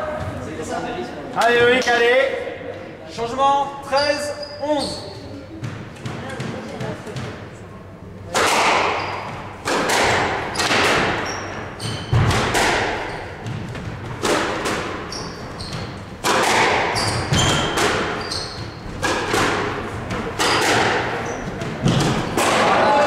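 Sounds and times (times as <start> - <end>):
shoes squeaking on wooden floor: 3.9 - 5.4, 8.9 - 9.6, 10.5 - 12.3, 15.0 - 16.1, 16.9 - 19.0, 20.4 - 22.0
rackets striking squash ball: 4.4 - 7.5, 8.3 - 23.0.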